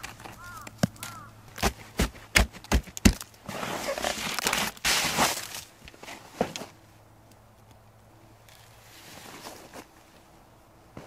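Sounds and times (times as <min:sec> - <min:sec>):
ice crust scraping and crunching: 0:00.0 - 0:06.8, 0:08.5 - 0:10.0.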